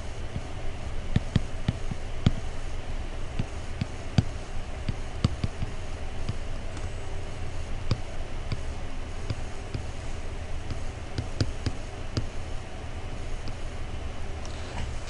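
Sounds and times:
steady low hum: 0.0 - 15.0
stylus pen tapping on tablet: 4.9 - 5.7.

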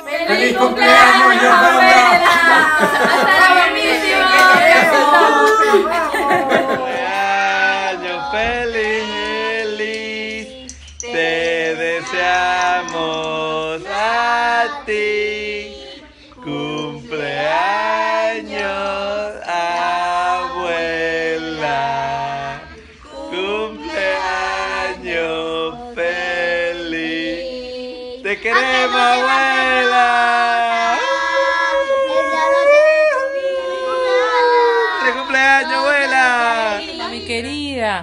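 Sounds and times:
family singing unaccompanied: 0.0 - 37.8.

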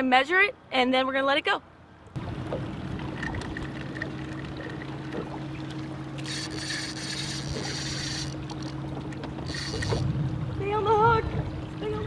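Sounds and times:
boat motor humming: 2.1 - 12.0
fishing reel drag buzzing: 6.1 - 10.1.

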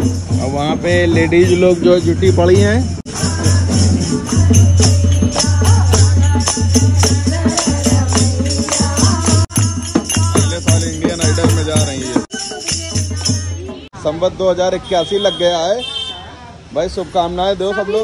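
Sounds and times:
jingling hand clappers: 0.0 - 13.8
hand drum beating rhythm: 0.0 - 13.9
women singing: 3.1 - 13.9.

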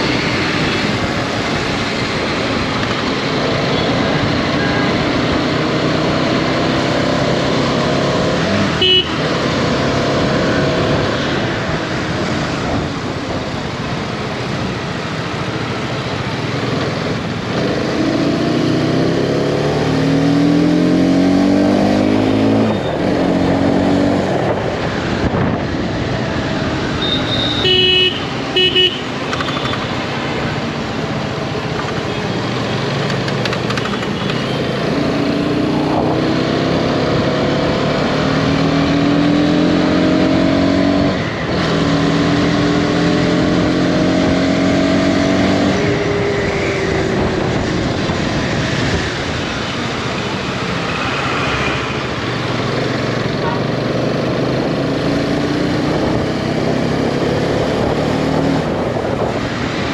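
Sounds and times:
wind and road noise: 0.0 - 59.9
vehicle horn honks: 8.8 - 9.3, 27.0 - 29.8.

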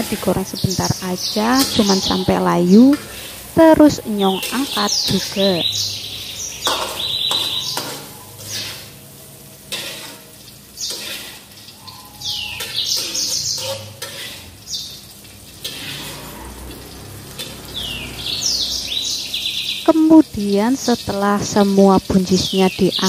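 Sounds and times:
birds chirping: 0.0 - 3.0, 3.6 - 8.8, 10.5 - 13.8, 14.6 - 15.2, 15.9 - 23.0
oil sizzling in a wok: 0.0 - 23.0
metal spatula scraping pan: 1.4 - 3.6, 6.6 - 17.8.

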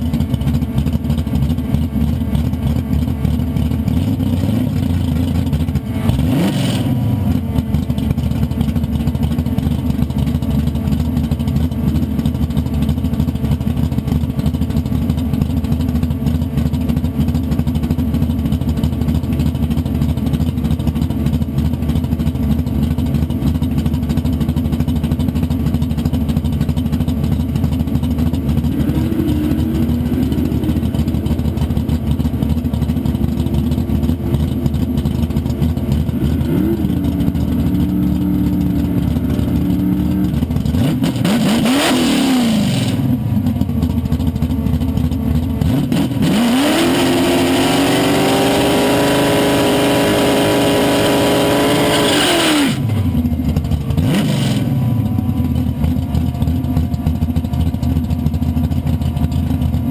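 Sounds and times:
car engine idling and revving: 0.0 - 59.9.

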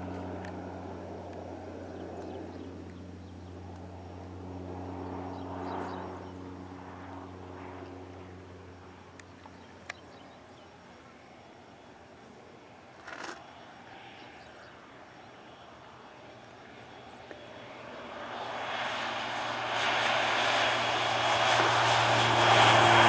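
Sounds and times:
plane piston engine droning: 12.6 - 23.0.

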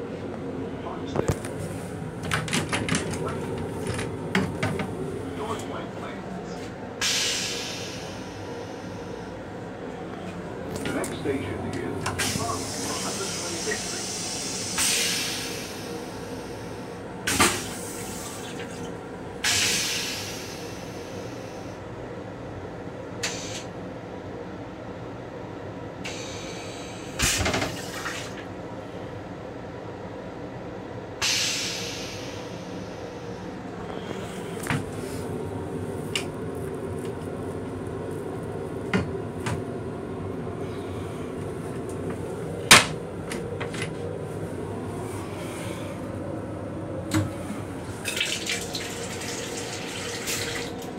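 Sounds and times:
moving train rumble: 0.0 - 50.9
railcar hum: 0.0 - 50.9
toilet flushing water hiss: 7.0 - 9.2, 12.2 - 18.8, 19.4 - 21.8, 26.0 - 28.4, 31.2 - 33.3, 47.3 - 50.9.

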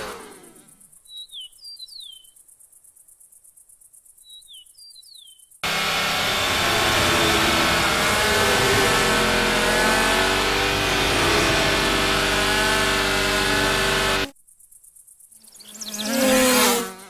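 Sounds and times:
loud steady engine note: 0.0 - 0.7, 5.6 - 14.3.

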